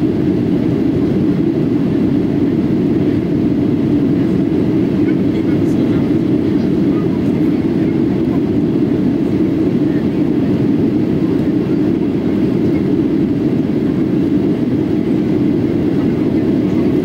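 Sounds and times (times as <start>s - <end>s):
airplane cabin engine rumble: 0.0s - 17.0s.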